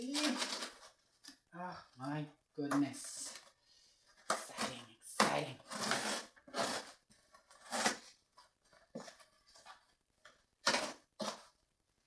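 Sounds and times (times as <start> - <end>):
cardboard rustling and scraping: 4.1 - 10.0, 10.6 - 11.6.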